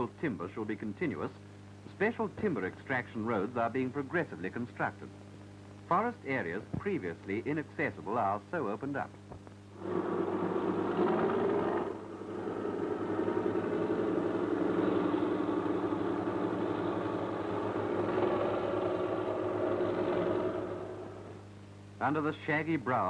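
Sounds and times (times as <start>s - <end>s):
crawler tractor engine running: 9.8s - 21.4s.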